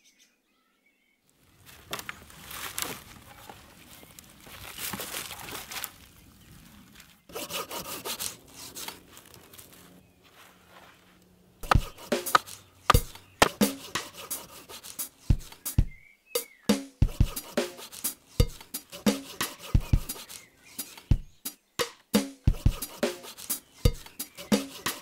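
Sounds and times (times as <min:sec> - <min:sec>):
branches rubbing and scraping: 0:01.3 - 0:16.0, 0:17.5 - 0:21.2, 0:22.9 - 0:25.0
log struck on chopping block: 0:11.6 - 0:13.8.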